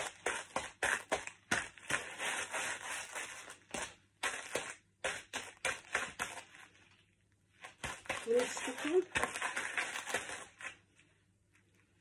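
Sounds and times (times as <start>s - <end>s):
crisps crunching underfoot: 7.6s - 10.8s.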